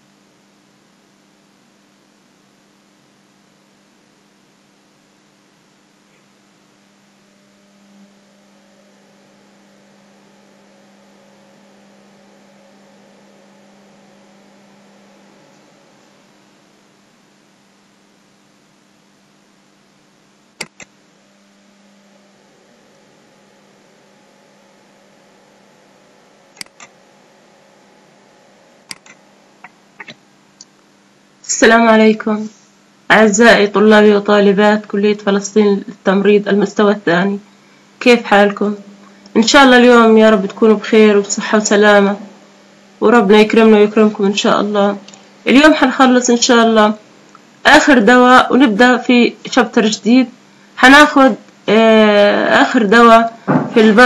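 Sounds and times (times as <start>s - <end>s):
background hiss: 0.0s - 54.0s
low electrical hum: 0.0s - 54.0s
computer mouse clicks: 20.6s - 20.9s, 26.6s - 26.9s, 28.9s - 29.2s.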